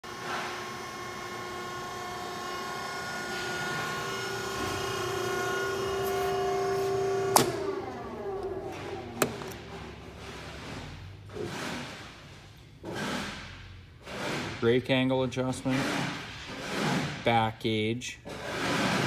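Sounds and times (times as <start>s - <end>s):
shear motor humming: 0.8s - 9.7s.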